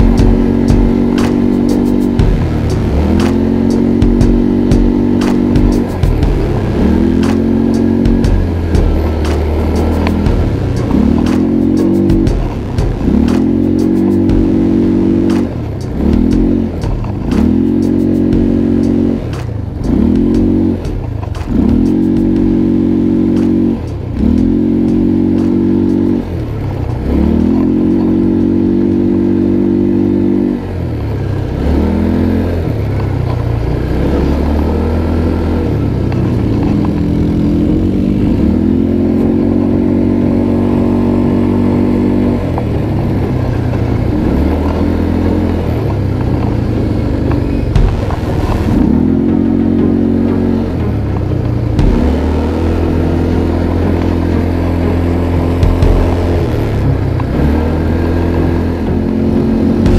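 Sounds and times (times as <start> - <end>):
sharp clicks and rattles: 0.0 - 22.7
atv engine revving: 0.0 - 59.9.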